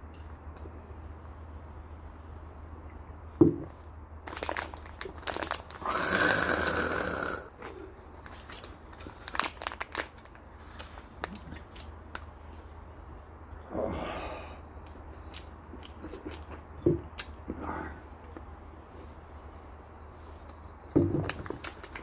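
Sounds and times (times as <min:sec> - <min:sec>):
foil snack bag crinkling: 0:04.2 - 0:07.0, 0:08.2 - 0:11.9.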